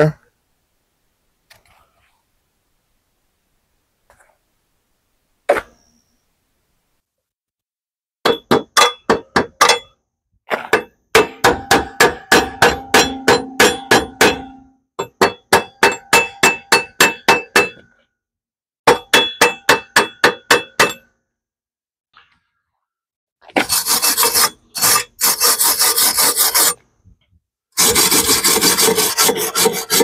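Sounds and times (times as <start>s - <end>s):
chipping hammer striking metal: 8.2s - 10.0s, 10.7s - 17.8s, 18.9s - 21.0s.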